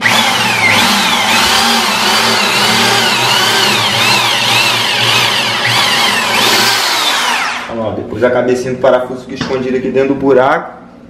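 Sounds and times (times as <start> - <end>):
electric drill motor whine: 0.0 - 7.7.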